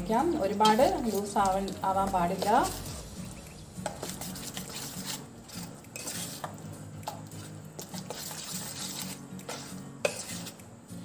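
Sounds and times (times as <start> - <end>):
spoon stirring thick batter: 0.0 - 10.7
spoon clinking against metal bowl: 0.3 - 7.2.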